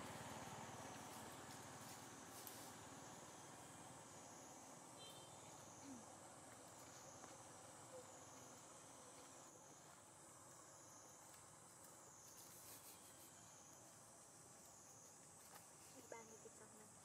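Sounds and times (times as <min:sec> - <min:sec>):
insect chorus buzzing: 0:00.0 - 0:17.0.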